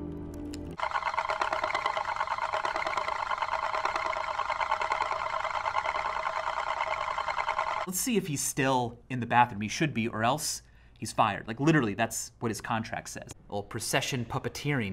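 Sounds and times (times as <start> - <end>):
metal disc rattling whir: 0.8 - 7.9.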